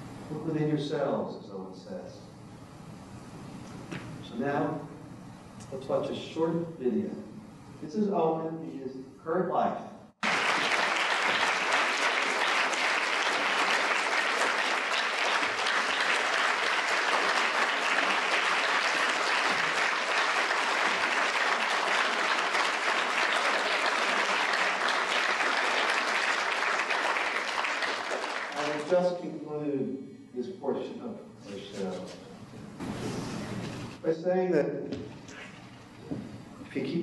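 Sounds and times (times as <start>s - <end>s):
audience applauding: 10.2s - 29.0s.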